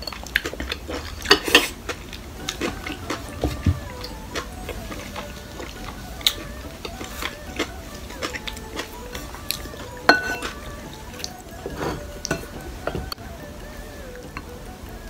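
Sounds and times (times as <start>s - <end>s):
soft background music: 0.0s - 15.0s
spoon clinking on bowl: 10.0s - 10.6s, 11.6s - 13.0s
wooden spoon scraping ceramic bowl: 11.6s - 13.0s.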